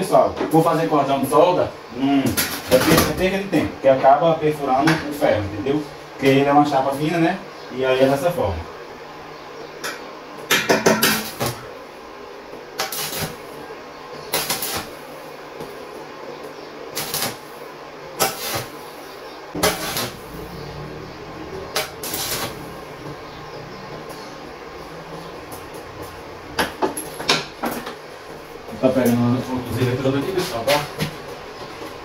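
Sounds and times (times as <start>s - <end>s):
welding arc crackle: 10.5s - 11.7s, 12.8s - 13.6s, 14.3s - 15.8s, 16.9s - 20.8s, 21.5s - 23.2s.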